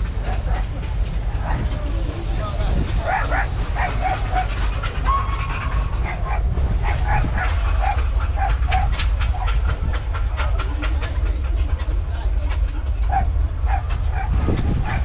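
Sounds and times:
dog barking: 0:03.0 - 0:04.5, 0:06.0 - 0:09.5, 0:13.1 - 0:15.0.

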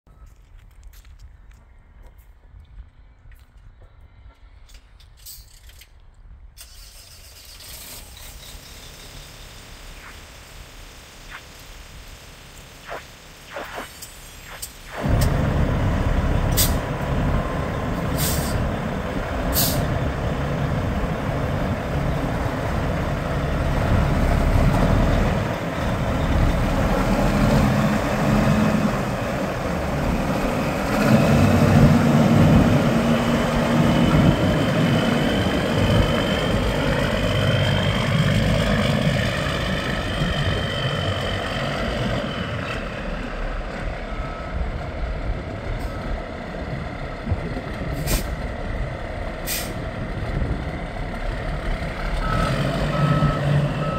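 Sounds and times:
diesel truck engine: 0:15.0 - 0:53.9
short air hisses: 0:16.5 - 0:16.8, 0:18.1 - 0:18.6, 0:19.5 - 0:19.9, 0:48.0 - 0:48.3, 0:49.5 - 0:49.8.

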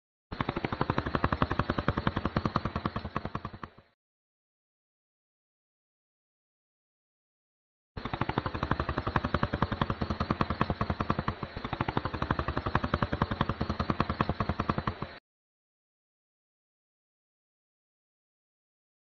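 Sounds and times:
bird clattering its bill: 0:00.4 - 0:03.9, 0:08.0 - 0:15.2.

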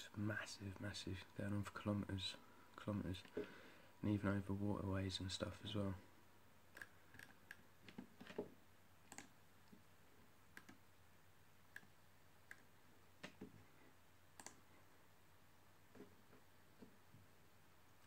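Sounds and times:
faint computer mouse clicks: 0:14.4 - 0:14.6.

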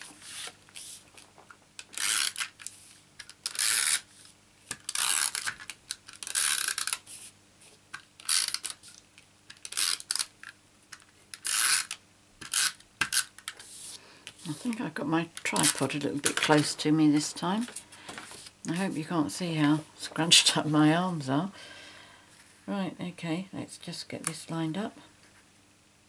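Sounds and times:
paper handling: 0:00.0 - 0:10.3, 0:12.4 - 0:19.0.

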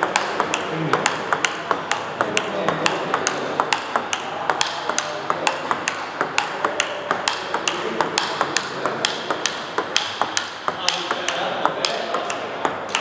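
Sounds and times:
table tennis ball clicking: 0:00.0 - 0:13.0.

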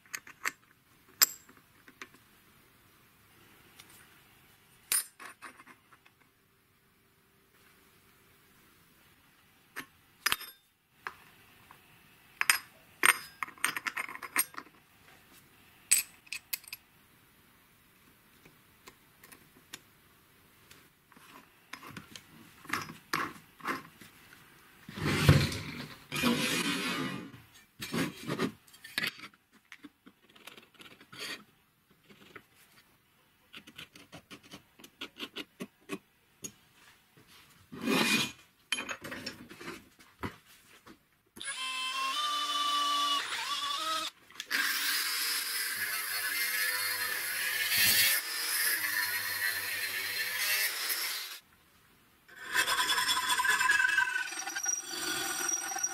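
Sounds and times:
metal parts clicking and clinking: 0:12.4 - 0:14.7, 0:15.9 - 0:16.8
metal rubbing scrapes: 0:24.9 - 0:29.0, 0:52.3 - 0:55.9.

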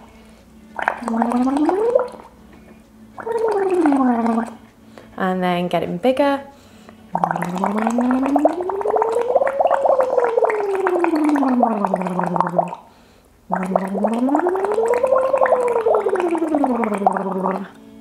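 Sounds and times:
woman humming through a straw bubbling: 0:00.0 - 0:02.3, 0:03.2 - 0:04.7, 0:07.1 - 0:12.9, 0:13.5 - 0:17.8.

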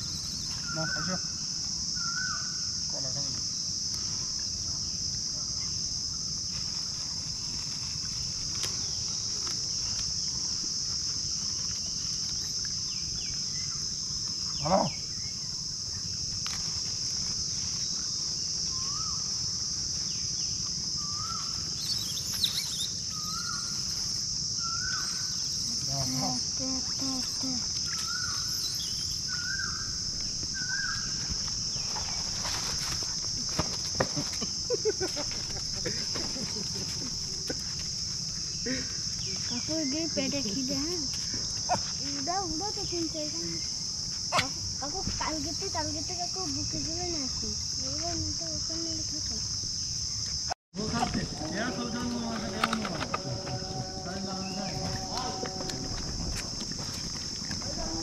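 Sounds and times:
bird calling: 0:00.0 - 0:01.3, 0:24.6 - 0:30.0, 0:50.8 - 0:58.0
insect chorus drone: 0:00.0 - 0:58.0
low rumble: 0:52.0 - 0:58.0.

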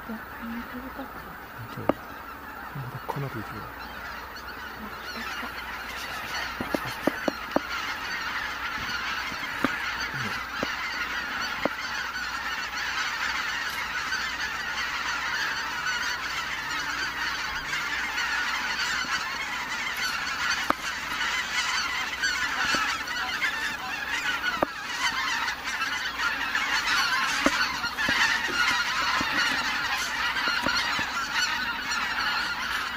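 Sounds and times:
geese honking: 0:00.0 - 0:32.9.

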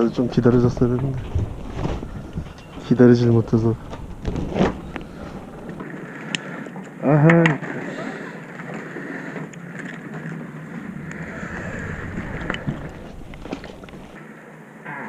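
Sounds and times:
rustling: 0:00.0 - 0:05.8, 0:10.6 - 0:14.2
wind rumbling on microphone: 0:00.0 - 0:05.8, 0:10.4 - 0:14.2.

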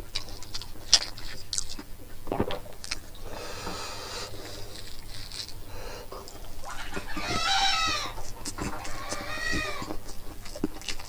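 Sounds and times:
chewing with mouth clicks: 0:00.0 - 0:03.4, 0:04.2 - 0:11.0
fingers mixing rice on plate: 0:04.4 - 0:11.0.

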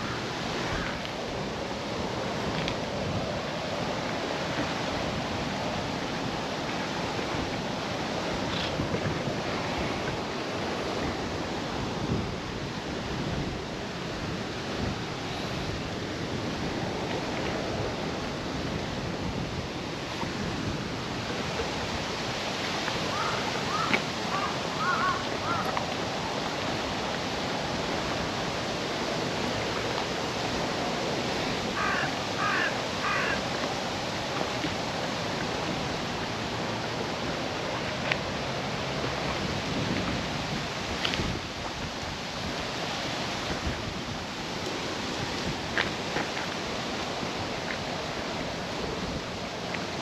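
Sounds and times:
water rushing: 0:00.0 - 0:50.0
crows cawing: 0:23.1 - 0:25.7, 0:31.8 - 0:33.4.

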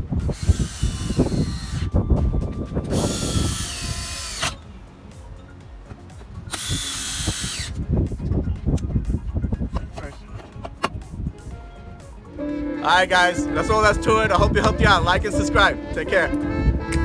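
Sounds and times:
cordless drill whining: 0:00.2 - 0:02.2, 0:02.8 - 0:04.6, 0:06.5 - 0:07.8.

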